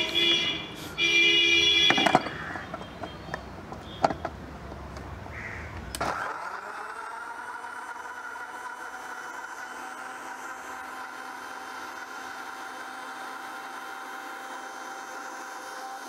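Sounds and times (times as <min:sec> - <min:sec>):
crow cawing: 0:02.3 - 0:02.7, 0:05.3 - 0:05.8
mixer grinder humming: 0:05.8 - 0:16.0.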